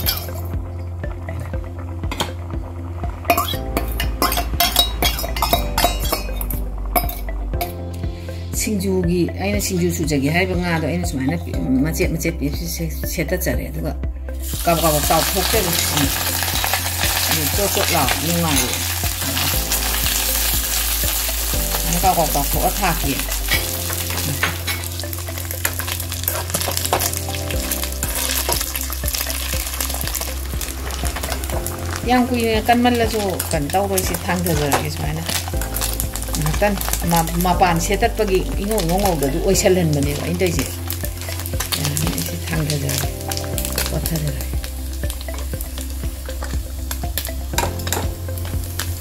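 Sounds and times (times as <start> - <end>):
metal utensils clinking on bowl: 0.0 - 0.5, 3.3 - 7.3, 15.2 - 20.3, 21.7 - 24.9
food sizzling in hot oil: 0.0 - 8.6, 14.3 - 49.0.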